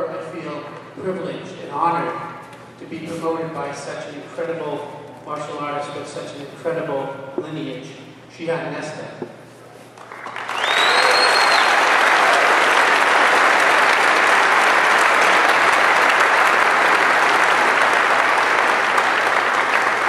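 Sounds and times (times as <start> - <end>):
crowd applauding: 10.0 - 20.0
short whistle: 10.6 - 11.8.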